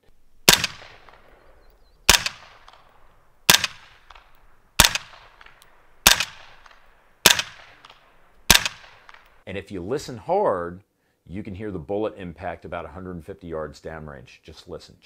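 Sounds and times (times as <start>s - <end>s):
suppressed gunshots with echo: 0.4s - 9.4s.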